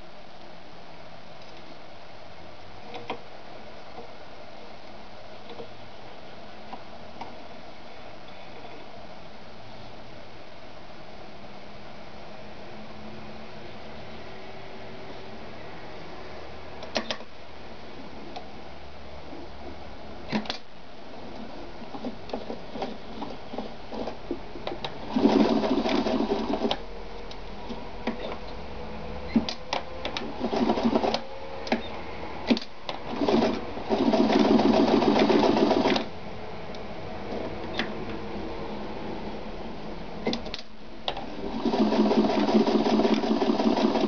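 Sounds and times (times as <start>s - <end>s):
sewing machine stitching: 24.8s - 26.8s, 29.3s - 36.1s, 41.2s - 44.0s.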